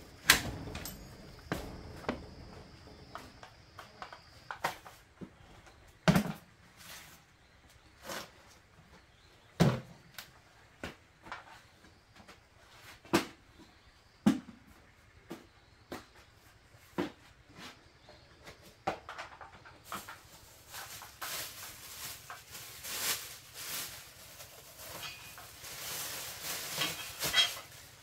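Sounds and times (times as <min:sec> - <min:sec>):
knocks of things set down: 0:00.1 - 0:05.3.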